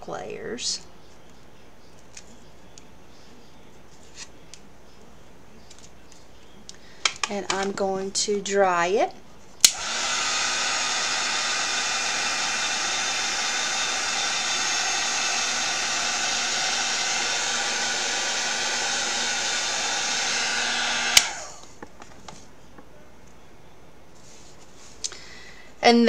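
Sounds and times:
hair dryer switch click: 0:09.6 - 0:10.2, 0:21.0 - 0:21.4
hair dryer blowing: 0:09.7 - 0:21.8.

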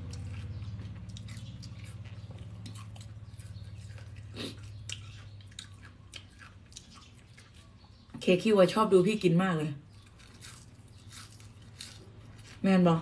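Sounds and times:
close chewing crunches: 0:00.0 - 0:08.2, 0:09.8 - 0:13.0.

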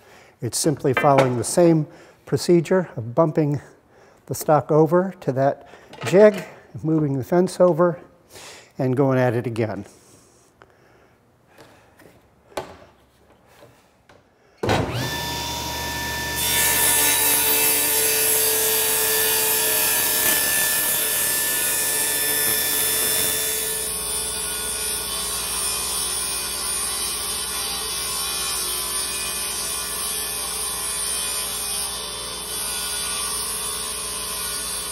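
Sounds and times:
wood knocking: 0:01.0 - 0:01.5
table saw cutting wood: 0:14.7 - 0:34.9
table saw motor whine: 0:14.8 - 0:34.9.

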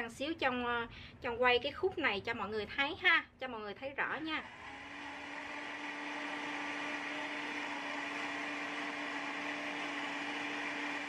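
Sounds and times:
blender motor running: 0:04.3 - 0:11.0.

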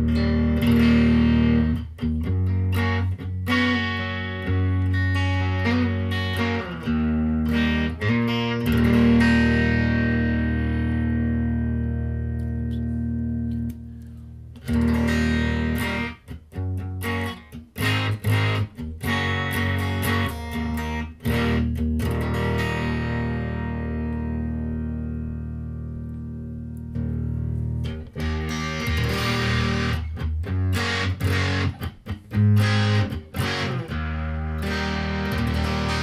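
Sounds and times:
distorted electric guitar chords: 0:00.0 - 0:36.0.

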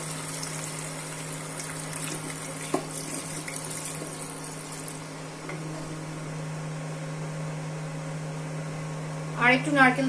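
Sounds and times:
liquid pouring into a pan: 0:00.0 - 0:05.0
low electrical hum: 0:00.0 - 0:10.0.

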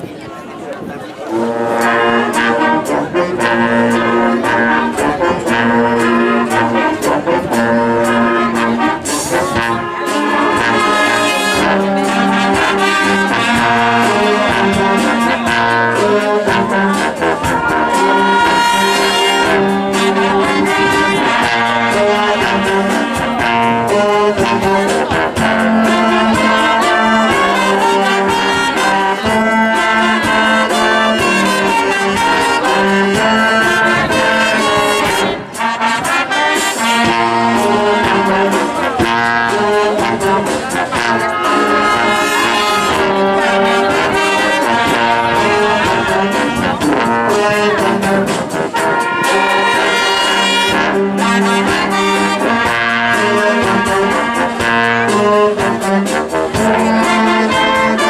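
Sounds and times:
trombones and trumpets: 0:00.0 - 0:58.0
wind band playing: 0:00.1 - 0:58.0.

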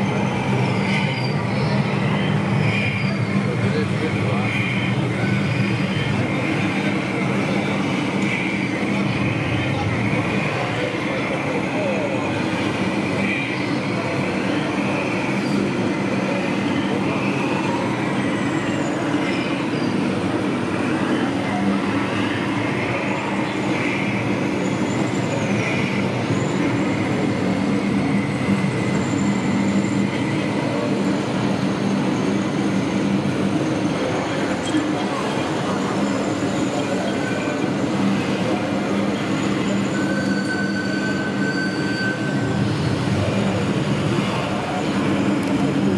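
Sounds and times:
exhibition hall din: 0:00.0 - 0:45.9
high squealing glides: 0:00.0 - 0:45.9
model tractor mechanical drone: 0:42.5 - 0:45.9.

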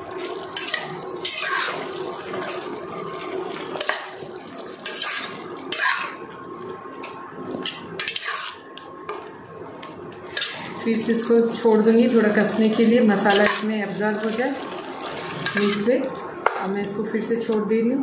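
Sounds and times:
masala sizzling and bubbling: 0:00.0 - 0:18.0
metal spatula scraping a pot: 0:00.6 - 0:02.6, 0:04.8 - 0:06.2, 0:07.6 - 0:08.7, 0:10.3 - 0:11.0, 0:12.3 - 0:13.9, 0:15.1 - 0:16.0.

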